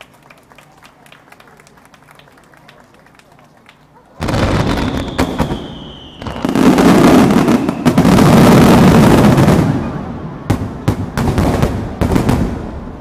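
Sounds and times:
fireworks booming and crackling: 0:04.2 - 0:13.0.

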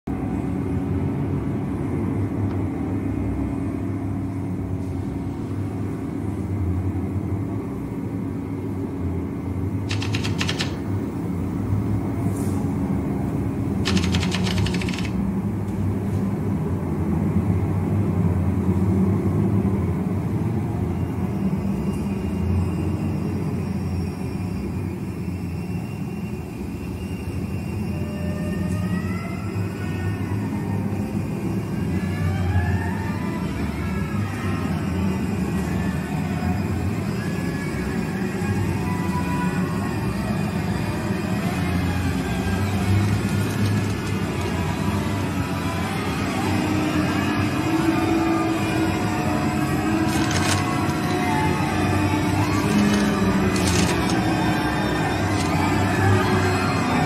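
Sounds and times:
rapid rattling clicks: 0:09.9 - 0:10.9, 0:13.8 - 0:15.2, 0:52.8 - 0:54.2.

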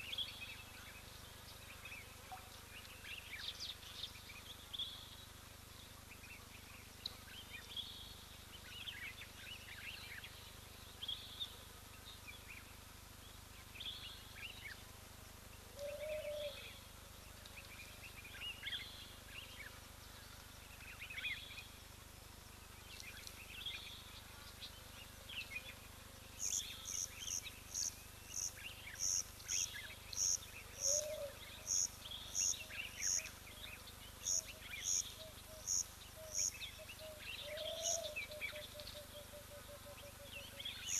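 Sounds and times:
birds chirping and trilling: 0:26.4 - 0:40.9.

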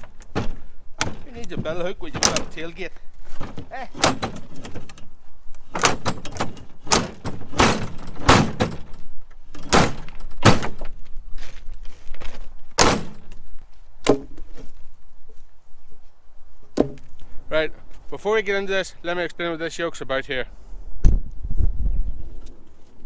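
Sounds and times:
firewood logs thudding: 0:00.0 - 0:05.0, 0:05.7 - 0:14.8, 0:16.7 - 0:17.1.

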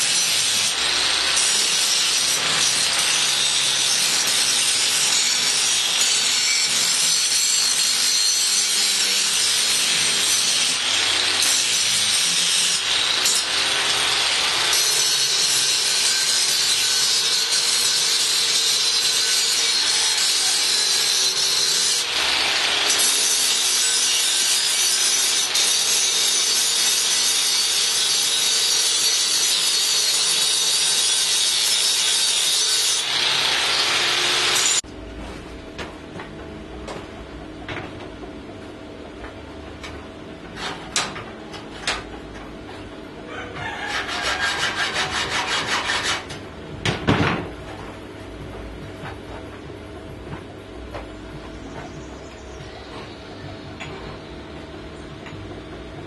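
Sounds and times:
angle grinder grinding steel: 0:00.0 - 0:34.9, 0:43.6 - 0:46.4.

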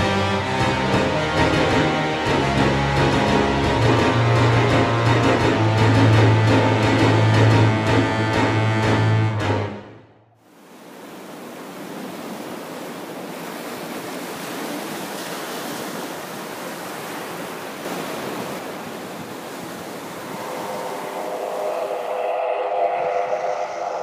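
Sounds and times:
ocean waves breaking on beach: 0:10.4 - 0:24.0
droning hum: 0:19.6 - 0:24.0.

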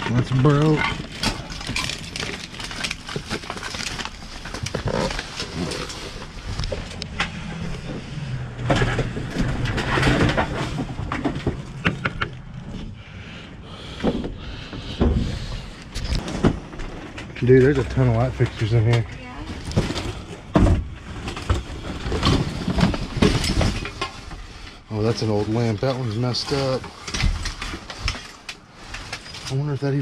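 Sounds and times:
items knocking and clattering: 0:00.0 - 0:12.9, 0:13.9 - 0:24.5
trash bags rustling: 0:00.0 - 0:13.0.

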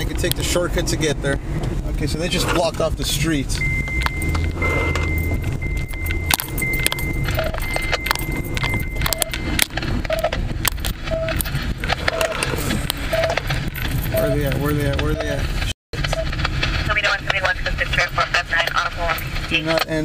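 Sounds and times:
car engine and road rumble: 0:00.0 - 0:20.0
high-pitched tone: 0:03.6 - 0:10.4
short beeps: 0:03.6 - 0:10.4
small clicks and jangles: 0:05.0 - 0:09.7.

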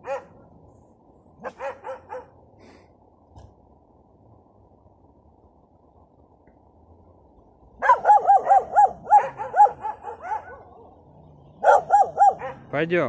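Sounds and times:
dog barking: 0:00.0 - 0:00.4, 0:01.4 - 0:02.4, 0:07.8 - 0:11.0, 0:11.6 - 0:12.7.

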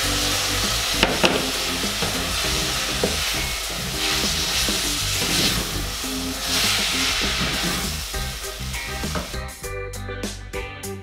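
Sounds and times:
broth sizzling in saucepan: 0:00.0 - 0:09.7
sharp knocks: 0:01.0 - 0:02.2
wooden spoon stirring: 0:02.0 - 0:07.8.

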